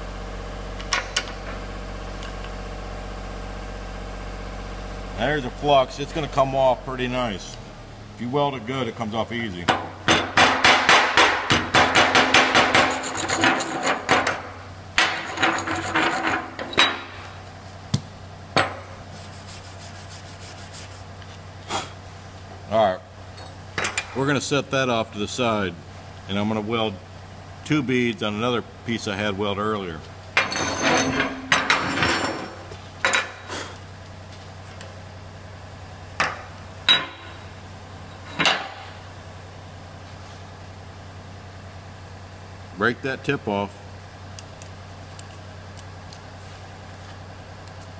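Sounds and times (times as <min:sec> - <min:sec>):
steady low hum: 0:00.0 - 0:47.9
scrubbing of weld bead: 0:12.7 - 0:14.2, 0:15.0 - 0:16.7, 0:19.1 - 0:21.2
steel pieces clanking on table: 0:12.8 - 0:14.2, 0:30.4 - 0:33.4.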